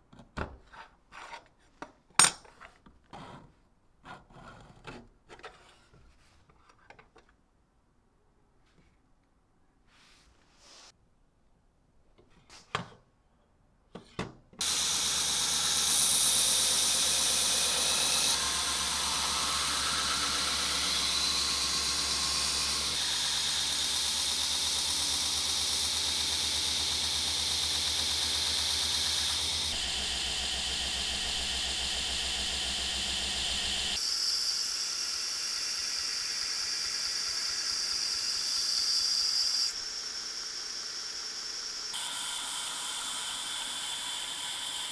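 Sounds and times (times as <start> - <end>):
belt grinder grinding blade: 14.6 - 44.9
low motor hum: 18.4 - 34.0.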